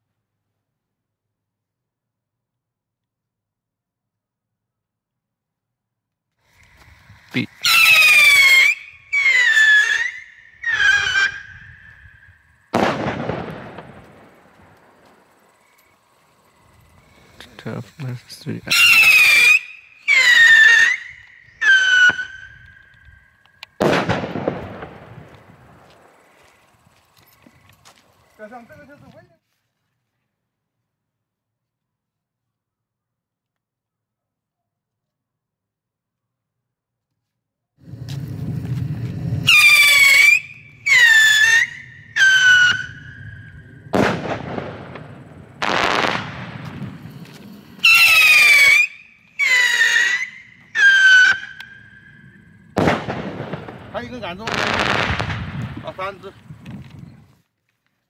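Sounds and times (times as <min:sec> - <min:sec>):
firework hissing burst: 0:06.5 - 0:22.6, 0:23.8 - 0:26.7, 0:37.8 - 0:56.2
rocket whistling: 0:07.0 - 0:17.6, 0:18.5 - 0:26.3, 0:37.8 - 0:55.5
firework bang: 0:12.7 - 0:14.6, 0:23.8 - 0:26.0, 0:43.8 - 0:48.9, 0:52.7 - 0:56.0.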